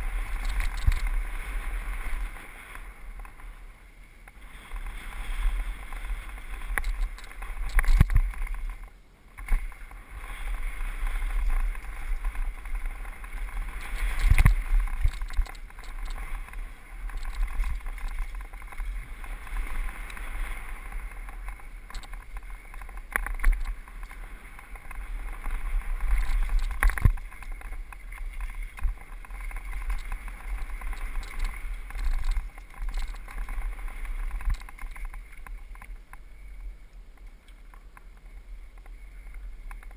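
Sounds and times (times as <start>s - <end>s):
bike rattling: 0.0s - 36.8s, 37.6s - 39.9s
tyres rolling on dirt: 4.3s - 36.2s
wind buffeting microphone: 4.4s - 36.7s.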